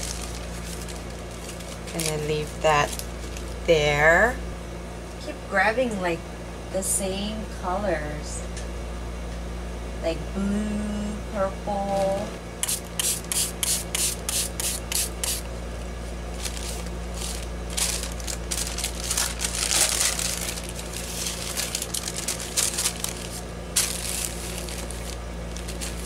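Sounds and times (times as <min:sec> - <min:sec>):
waxed paper crinkling: 0:00.0 - 0:03.7, 0:16.0 - 0:26.0.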